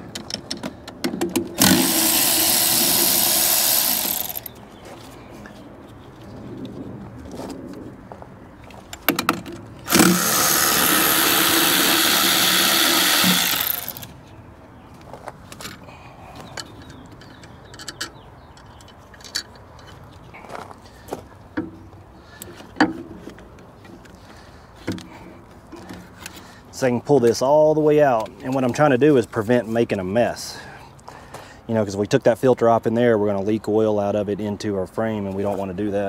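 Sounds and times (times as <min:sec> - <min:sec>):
electric ratchet running: 0:01.6 - 0:04.5, 0:09.9 - 0:14.1.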